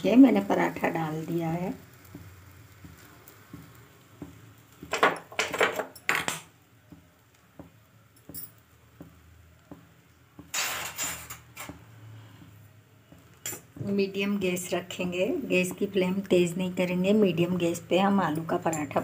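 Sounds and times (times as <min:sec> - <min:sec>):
kitchen utensils clattering: 0:04.9 - 0:06.5, 0:10.5 - 0:11.7.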